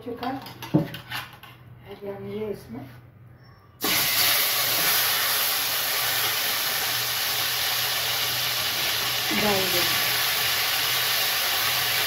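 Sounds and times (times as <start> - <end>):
prawns sizzling in hot oil: 3.8 - 12.0.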